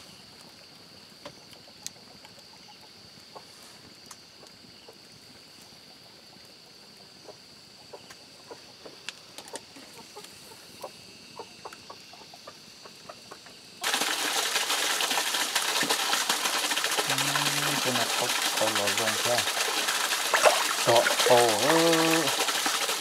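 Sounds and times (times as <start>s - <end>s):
rushing stream water: 13.8s - 23.0s.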